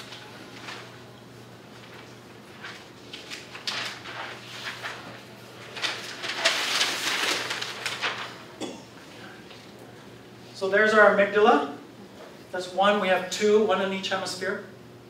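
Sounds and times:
paper sheets rustling: 0.0s - 8.4s.

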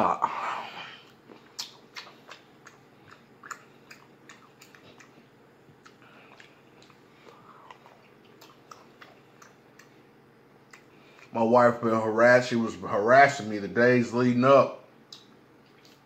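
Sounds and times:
person chewing: 0.7s - 11.3s, 15.1s - 16.0s.

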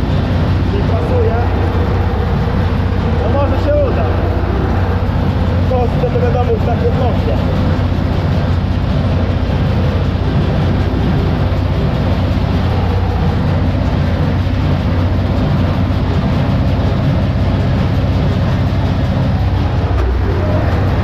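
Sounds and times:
hay baler running: 0.0s - 21.0s
tractor engine under load: 0.0s - 21.0s.

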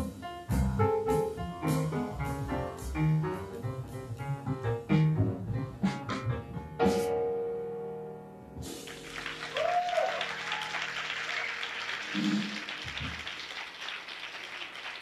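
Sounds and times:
piano chord: 0.0s - 11.2s
audience applause: 8.8s - 15.0s
short cheers: 9.4s - 11.8s.

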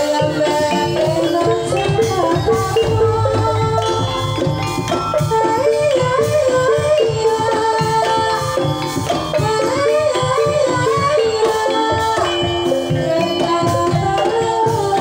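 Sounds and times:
drums: 0.0s - 15.0s
woman singing: 0.0s - 15.0s
gamelan playing: 0.4s - 8.1s
gongs: 1.2s - 7.5s.

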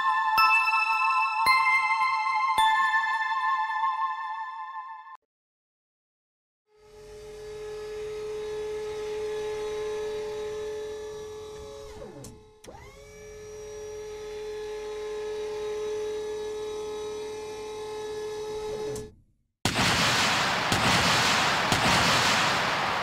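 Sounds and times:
turret electric motor whirring: 6.8s - 19.0s.

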